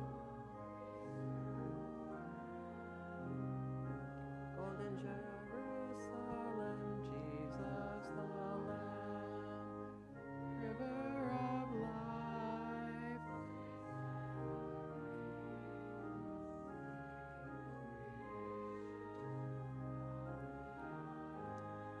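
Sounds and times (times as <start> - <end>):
congregation singing a hymn: 0.0 - 22.0
organ chords: 0.0 - 22.0.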